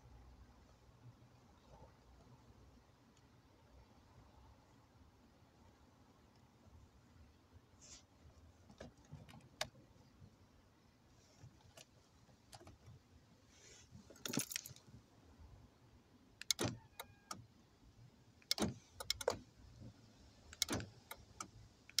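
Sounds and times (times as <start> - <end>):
keys jangling: 14.1 - 14.8
door locks clicking and clunking: 16.4 - 17.4, 18.4 - 19.5, 20.5 - 22.0.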